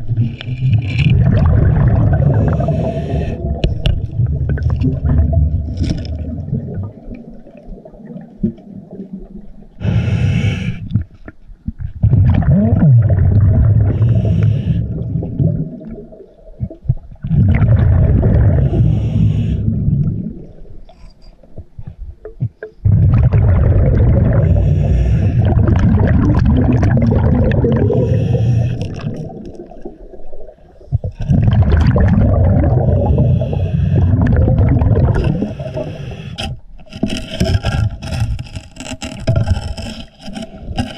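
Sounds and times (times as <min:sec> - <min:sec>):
bubbling exhales: 0:00.0 - 0:07.0, 0:12.0 - 0:20.6, 0:22.8 - 0:30.0, 0:30.9 - 0:36.6.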